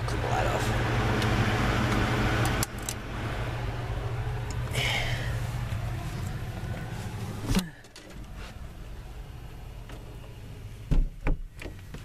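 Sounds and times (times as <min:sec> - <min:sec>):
exhaust fan motor hum: 0:00.0 - 0:12.0
thump: 0:10.9 - 0:11.4.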